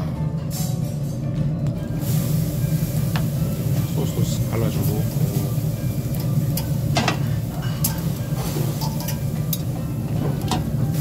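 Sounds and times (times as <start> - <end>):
ribs sizzling on grill: 2.0 - 9.8
metal tongs clinking on grill: 6.1 - 9.8.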